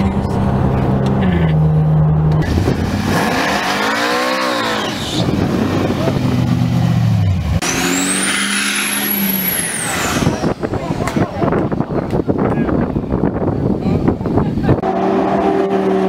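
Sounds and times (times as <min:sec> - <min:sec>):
muscle car engine revving: 0:00.0 - 0:11.2, 0:14.8 - 0:16.0
car engine cruising: 0:00.0 - 0:16.0
diesel truck accelerating: 0:00.0 - 0:16.0.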